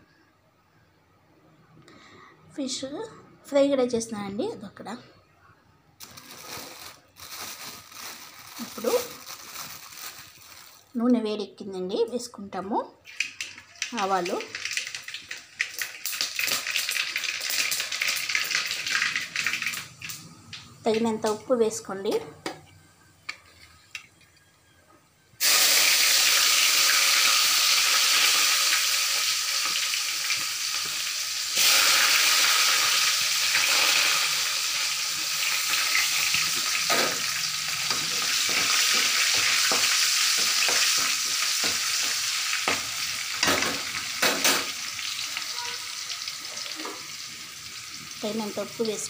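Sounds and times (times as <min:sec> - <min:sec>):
hot oil sizzling loudly: 0:13.1 - 0:20.2, 0:25.4 - 0:49.0.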